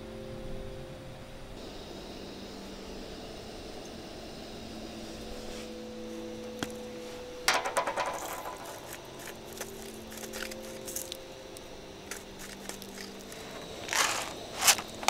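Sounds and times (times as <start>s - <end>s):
seasoning grinder clicking: 12.8s - 15.0s.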